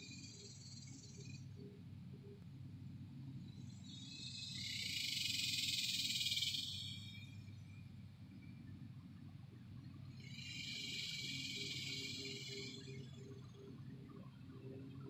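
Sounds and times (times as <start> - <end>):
steady low hum: 0.0 - 15.0
high hissing insect buzz: 10.3 - 12.9.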